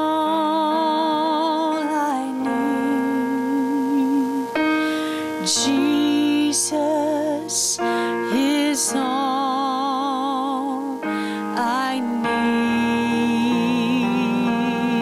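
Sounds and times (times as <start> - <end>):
sustained keyboard chords: 0.0 - 15.0
woman singing with vibrato: 0.0 - 15.0.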